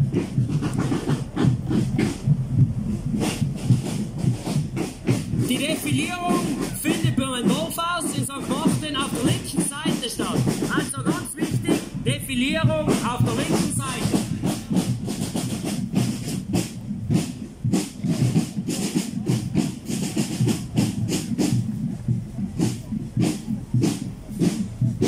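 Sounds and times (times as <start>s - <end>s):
field drums marching rhythm: 0.0s - 25.0s
people talking: 5.5s - 14.6s.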